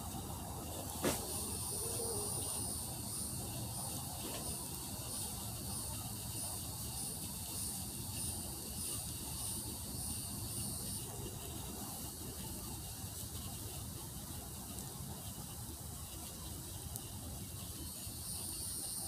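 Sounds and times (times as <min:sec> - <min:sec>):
high thin insect call: 0:00.2 - 0:12.9, 0:17.5 - 0:19.0.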